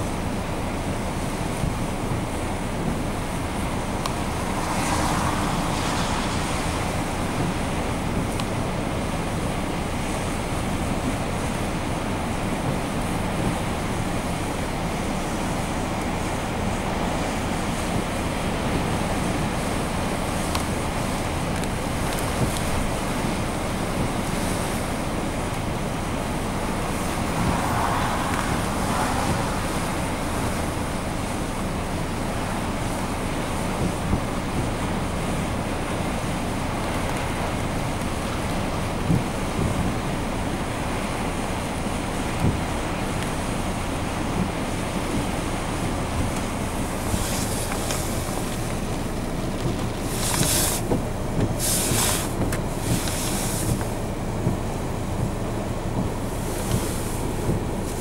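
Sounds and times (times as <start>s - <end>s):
heavy surf on rocky shore: 0.0s - 54.1s
hissing wind gusts: 0.0s - 58.0s
wind buffeting microphone: 0.1s - 51.7s
surf breaking on rocky shore: 3.2s - 9.2s, 25.8s - 34.2s.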